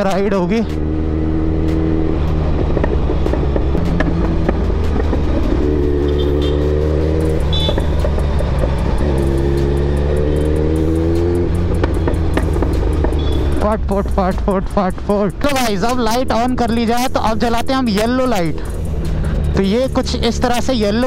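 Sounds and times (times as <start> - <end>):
motorcycle engine droning: 0.0 - 16.2.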